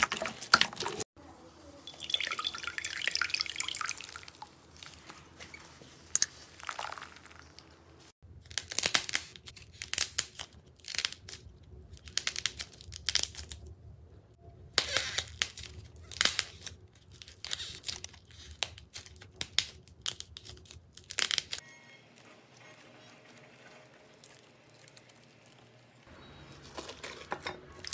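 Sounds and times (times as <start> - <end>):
slime crackling and popping: 8.4 - 13.7, 14.7 - 21.6.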